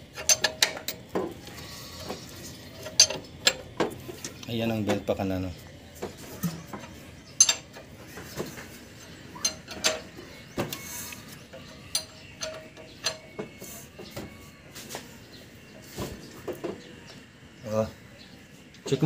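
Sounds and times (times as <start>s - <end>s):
hand tools clicking on metal: 0.0s - 4.6s, 6.4s - 7.9s, 8.6s - 13.9s.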